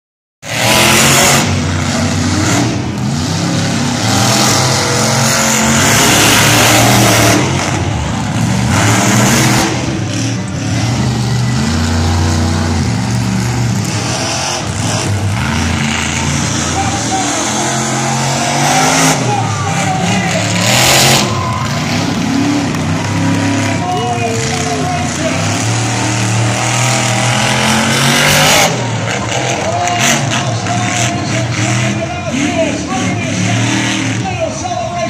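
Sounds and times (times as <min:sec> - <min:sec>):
truck engines revving hard: 0:00.4 - 0:35.0.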